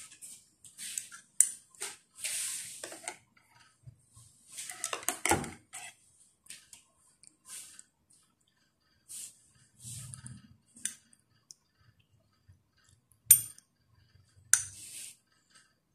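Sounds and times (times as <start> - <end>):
utensils clinking and scraping pot: 0.0 - 3.8, 4.6 - 6.0.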